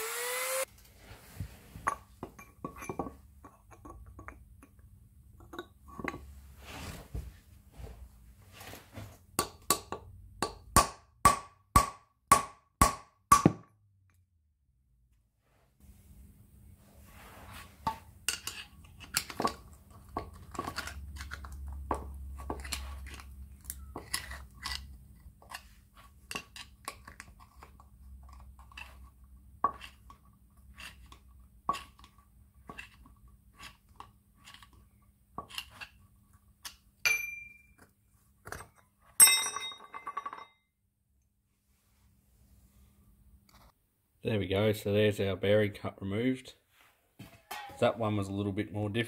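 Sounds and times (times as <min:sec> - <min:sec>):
metal clattering: 0:47.2 - 0:48.0.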